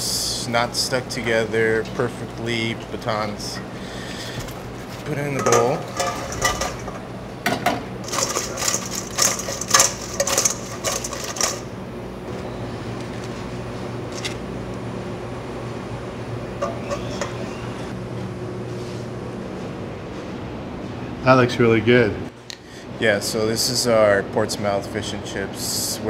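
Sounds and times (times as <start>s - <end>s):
low hum of kitchen machinery: 0.0s - 26.0s
fried fish rattling in metal bowl: 5.0s - 7.1s, 8.0s - 11.7s.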